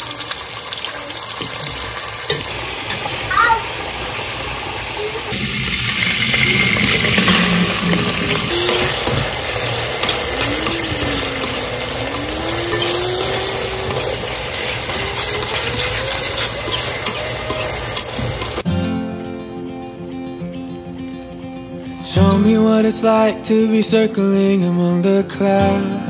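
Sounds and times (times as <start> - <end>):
food sizzling in a pan: 0.0 - 23.6
background music: 18.6 - 26.0.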